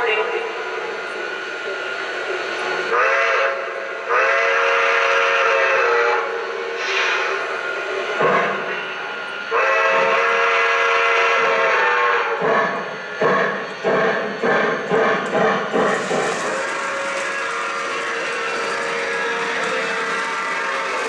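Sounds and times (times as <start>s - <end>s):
steam hiss: 6.7s - 7.6s, 15.8s - 21.0s.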